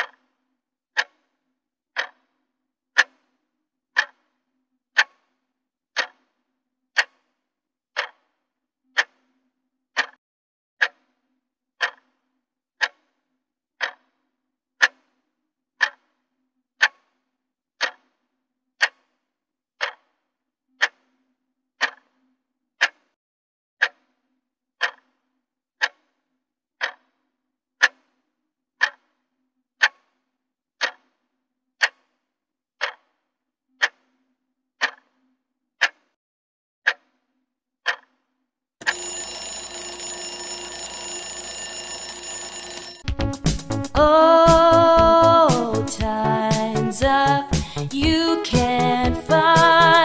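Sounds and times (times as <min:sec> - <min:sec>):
clock ticking: 0:02.0 - 0:02.2, 0:04.0 - 0:04.2, 0:06.0 - 0:06.2, 0:07.0 - 0:07.2, 0:08.0 - 0:08.2, 0:11.8 - 0:12.0, 0:13.8 - 0:14.0, 0:18.8 - 0:19.0, 0:19.8 - 0:20.0, 0:24.8 - 0:25.0, 0:26.8 - 0:27.0, 0:28.8 - 0:29.0, 0:30.8 - 0:31.0, 0:31.8 - 0:32.0, 0:32.8 - 0:33.0, 0:34.8 - 0:35.0, 0:35.8 - 0:36.0, 0:38.8 - 0:50.0.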